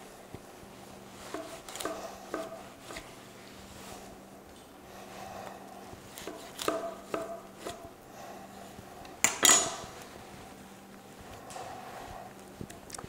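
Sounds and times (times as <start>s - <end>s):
knife cutting between rib bones: 1.3s - 3.1s, 6.1s - 7.9s.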